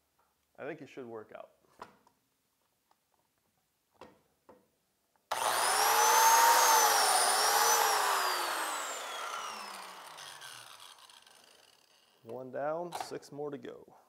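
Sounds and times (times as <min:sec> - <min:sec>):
biscuit joiner whining: 0:05.3 - 0:12.0.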